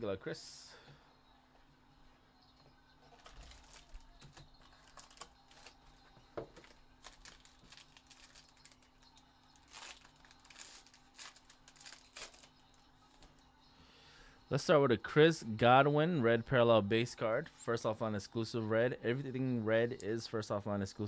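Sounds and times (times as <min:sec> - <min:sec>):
foil crinkling: 0:03.2 - 0:13.3.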